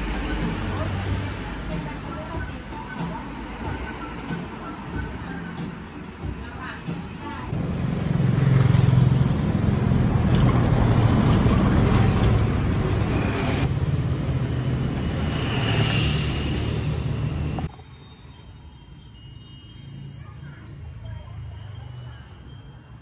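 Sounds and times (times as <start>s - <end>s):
road traffic passing: 0.0s - 23.0s.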